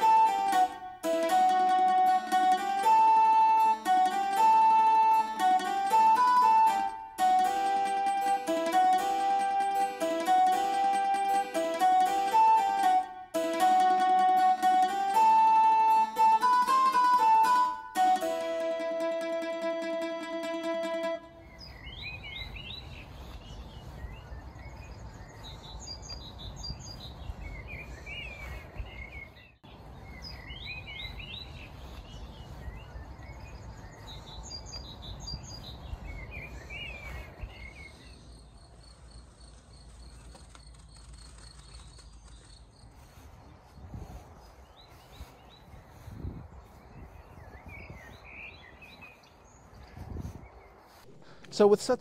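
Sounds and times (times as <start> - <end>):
birds chirping: 19.2 - 52.0
low wind rumble: 43.2 - 51.0.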